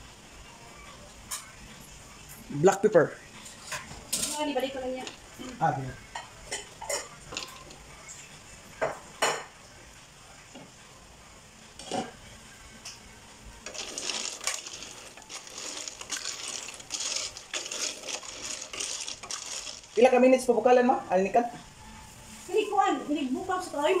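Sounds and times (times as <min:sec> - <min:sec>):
spatula scraping a steel pot: 0:13.7 - 0:20.0.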